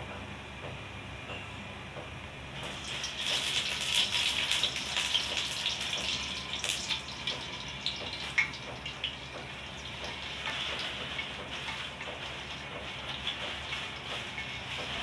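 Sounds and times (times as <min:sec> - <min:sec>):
oil crackling in pan: 0:02.6 - 0:15.0
oil pouring into a wok: 0:02.8 - 0:08.6.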